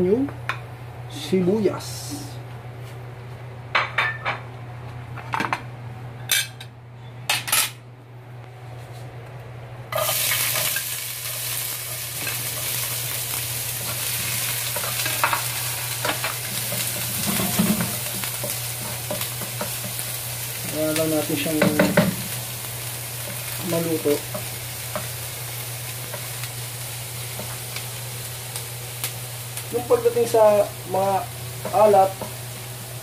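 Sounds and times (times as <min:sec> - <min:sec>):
onion sizzling in hot oil: 0:09.9 - 0:33.0
utensils knocking on pan: 0:21.5 - 0:22.2.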